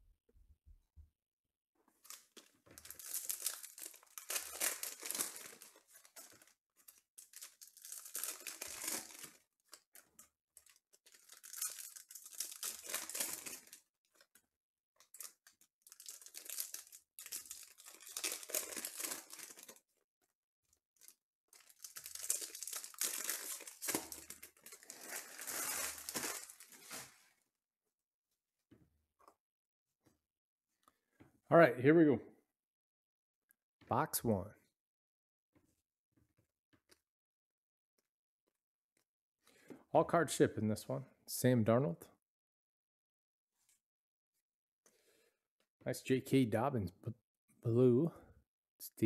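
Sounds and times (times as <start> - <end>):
foil packs tearing and crinkling: 2.1 - 9.8, 10.6 - 13.8, 15.1 - 19.8, 21.6 - 27.3.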